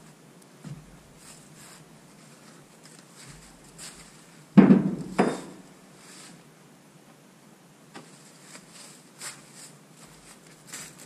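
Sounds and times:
heavy metal clanks: 0:04.8 - 0:05.7.

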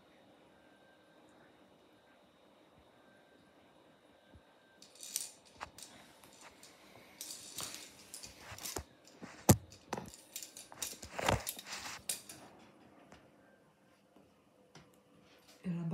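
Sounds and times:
plastic toy clattering on stone floor: 0:04.8 - 0:12.6.

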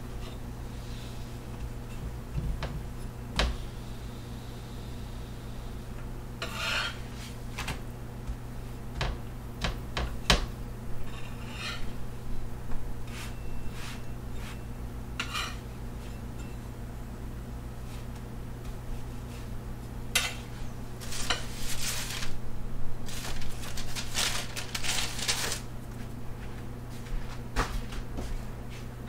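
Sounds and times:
steady low hum: 0:00.0 - 0:29.0
metal spatula scraping griddle: 0:06.4 - 0:07.4, 0:11.0 - 0:11.9, 0:13.1 - 0:16.2, 0:20.2 - 0:22.2.

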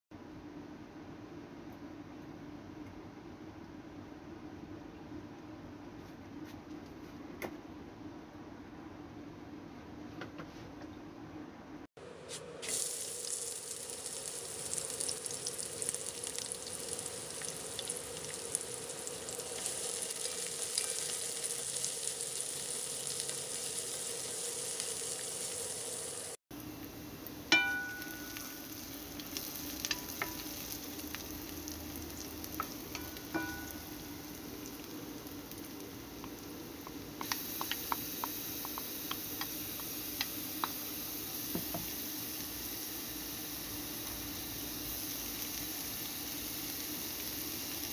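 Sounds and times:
onions sizzling in hot oil: 0:12.6 - 0:47.9.

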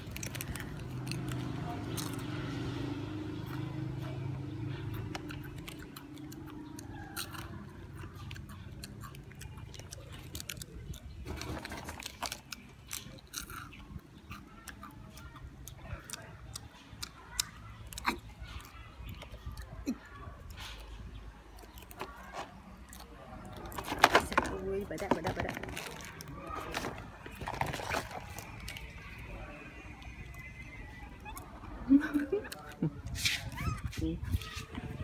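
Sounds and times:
monkey crunching a snack: 0:00.0 - 0:29.4, 0:32.0 - 0:34.8
foil wrapper crinkling: 0:23.7 - 0:29.1.

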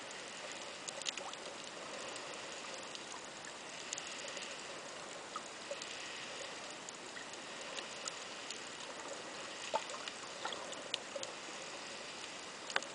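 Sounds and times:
sharp clicks and crackles: 0:00.1 - 0:11.5, 0:12.1 - 0:12.9
underwater hiss: 0:03.7 - 0:12.7.

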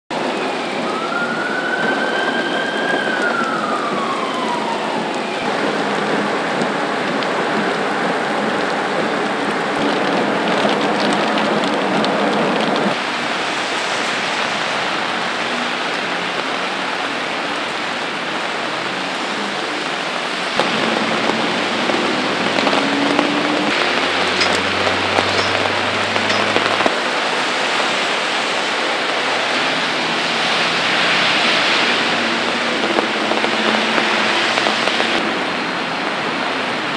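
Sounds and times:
heavy rain on pavement and cars: 0:00.1 - 0:36.9
siren wailing: 0:00.2 - 0:13.4, 0:19.2 - 0:27.8.

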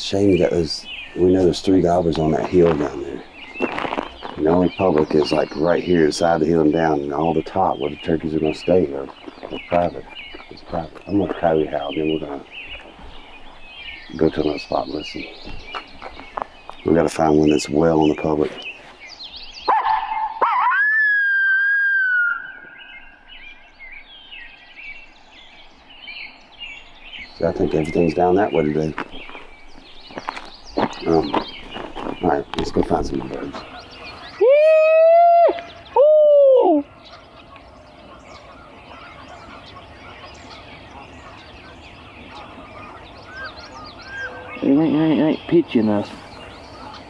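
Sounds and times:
faint bird chirps: 0:00.0 - 0:47.0
coyote howler call: 0:19.7 - 0:22.8, 0:33.7 - 0:45.3.

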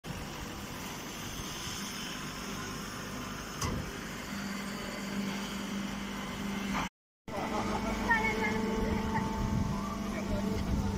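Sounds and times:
hydraulic baler and conveyor running: 0:00.1 - 0:10.9
low steady hum: 0:07.3 - 0:10.9.

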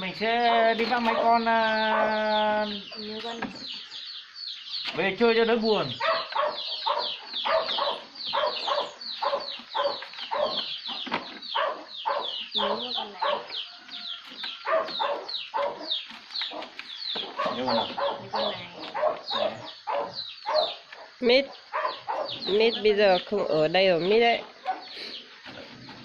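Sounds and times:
chicks peeping: 0:00.8 - 0:23.4, 0:24.0 - 0:26.0
chickens clucking: 0:06.0 - 0:23.4, 0:24.0 - 0:26.0.

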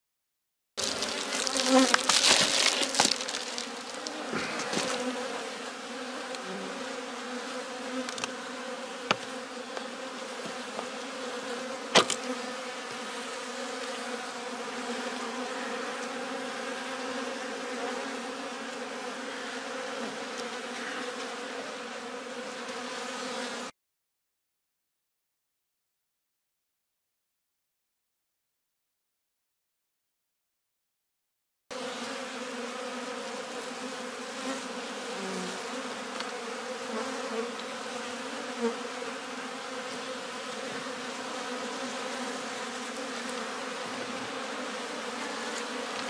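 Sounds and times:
bubble wrap crinkling: 0:00.8 - 0:04.3
honeybees buzzing: 0:00.8 - 0:23.7, 0:31.7 - 0:46.0.

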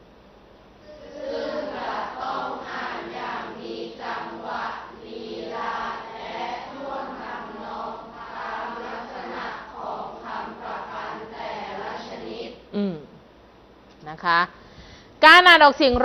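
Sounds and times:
students reading aloud in unison: 0:00.8 - 0:12.7.

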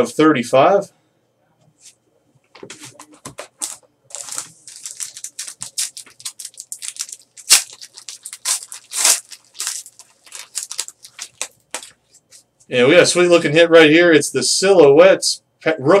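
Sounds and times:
wrapper crinkling and tearing: 0:03.6 - 0:12.0.

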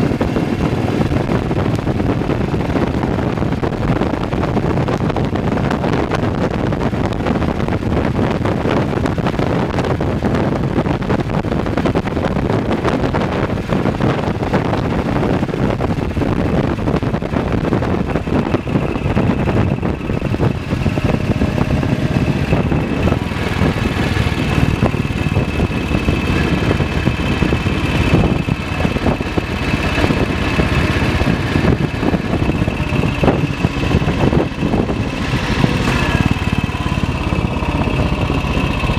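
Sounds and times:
motorcycle engine running: 0:00.0 - 0:38.9
steady high whine: 0:14.0 - 0:38.9.

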